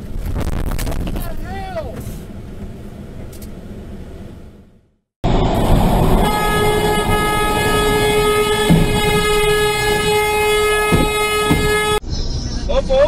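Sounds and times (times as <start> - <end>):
road and engine noise: 0.0 - 13.0
vehicle horn long blast: 6.0 - 12.0.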